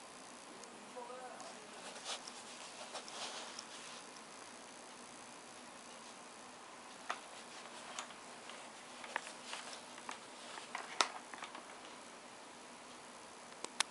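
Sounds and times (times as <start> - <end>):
headset cable handling clicks: 7.9 - 11.9.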